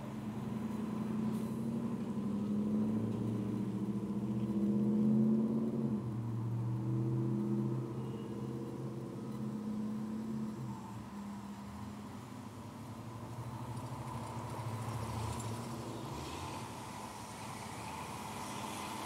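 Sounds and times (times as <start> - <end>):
vehicle engine passing: 0.0 - 12.6.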